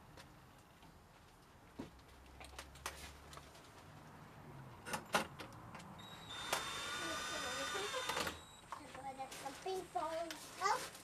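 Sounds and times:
electric driver motor whining: 0:06.0 - 0:08.5.

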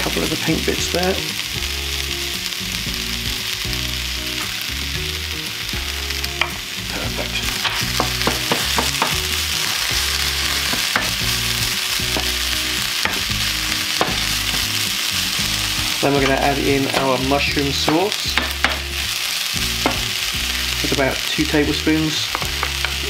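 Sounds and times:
food sizzling in a frying pan: 0:00.0 - 0:23.0
wooden spoon scraping a pan: 0:07.3 - 0:19.2.

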